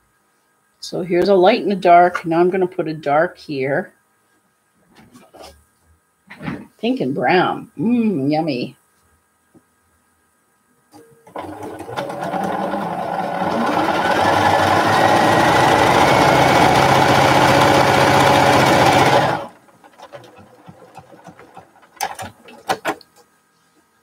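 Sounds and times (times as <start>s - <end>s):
sewing machine stitching: 11.3s - 23.0s.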